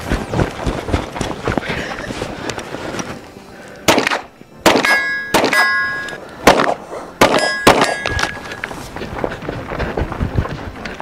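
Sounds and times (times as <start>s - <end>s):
gunshots: 3.9s - 5.8s, 6.4s - 8.2s
steel target ringing: 4.7s - 6.2s, 7.2s - 8.4s.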